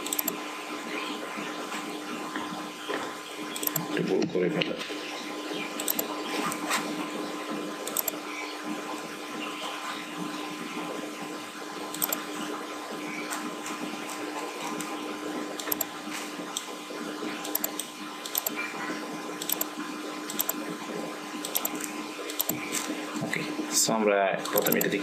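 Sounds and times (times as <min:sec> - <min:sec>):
computer mouse clicking: 0:00.0 - 0:00.4, 0:03.6 - 0:03.9, 0:05.8 - 0:06.6, 0:07.8 - 0:08.2, 0:11.9 - 0:12.2, 0:15.6 - 0:15.9, 0:17.4 - 0:18.6, 0:19.4 - 0:19.7, 0:20.3 - 0:20.6, 0:21.4 - 0:22.7, 0:24.4 - 0:25.0.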